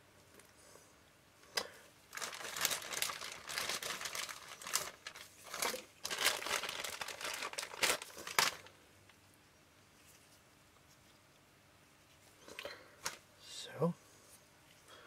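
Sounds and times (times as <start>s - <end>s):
sharp paper crackle: 2.1s - 8.8s
paper crinkling and rustling: 2.1s - 9.2s.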